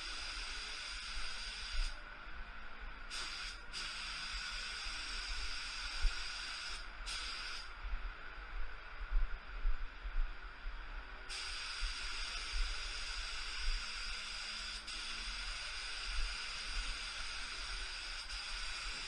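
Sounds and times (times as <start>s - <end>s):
spray gun hissing: 0.0s - 2.0s, 3.1s - 7.7s, 11.3s - 19.0s.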